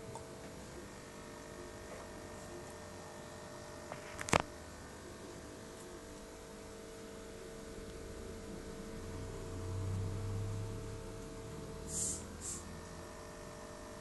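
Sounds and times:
electrical hum: 0.0s - 14.0s
short high hisses: 11.9s - 12.7s.

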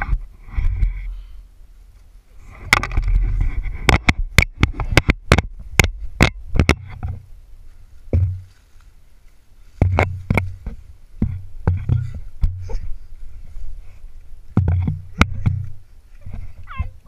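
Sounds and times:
camera handling rumble: 2.5s - 7.2s
sharp clicks and knocks: 2.6s - 7.2s, 9.8s - 12.7s, 14.5s - 16.4s
dull thump: 8.1s - 8.5s, 9.8s - 12.9s, 14.5s - 16.6s.

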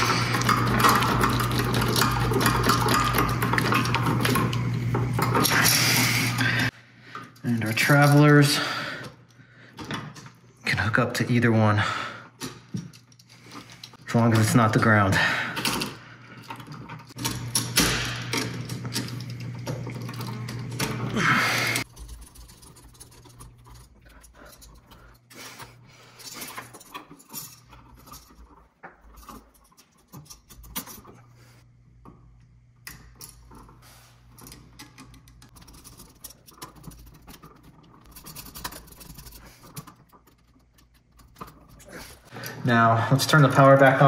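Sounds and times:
hand tools on wire: 0.0s - 11.7s, 12.4s - 31.6s, 32.8s - 44.0s
small clicks and metal rubbing: 21.8s - 31.4s, 32.0s - 42.3s.

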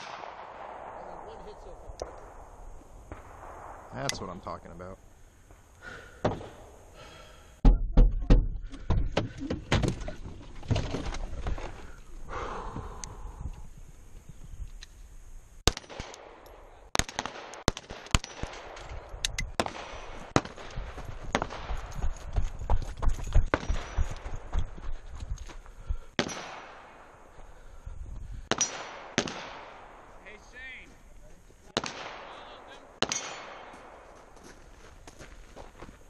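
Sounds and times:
pistol shots: 0.0s - 2.5s, 15.6s - 18.8s, 19.5s - 22.0s, 26.2s - 27.1s, 28.5s - 30.0s, 31.7s - 34.2s
thumps and rustling in a car: 7.6s - 11.5s.

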